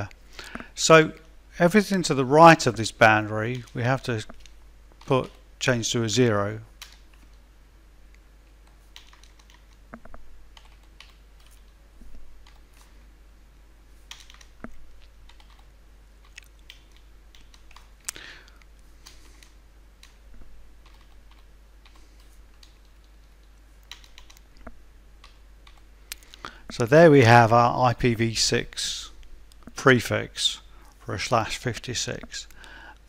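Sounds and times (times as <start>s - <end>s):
computer keyboard keystrokes: 8.6s - 11.8s, 12.4s - 12.9s, 14.1s - 26.3s.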